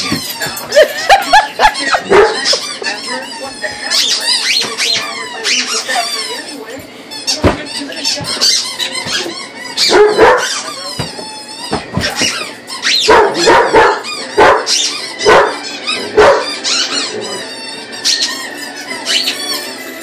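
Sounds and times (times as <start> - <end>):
squeaky toy squeaks: 0.0 - 0.8, 1.6 - 20.0
dog barking: 2.0 - 2.6, 9.8 - 10.5, 13.0 - 16.5.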